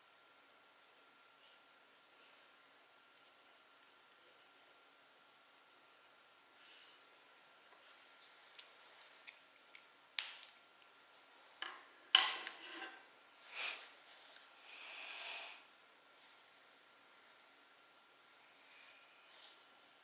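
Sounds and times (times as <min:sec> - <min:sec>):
soft rubbing on paper: 0:18.6 - 0:19.8.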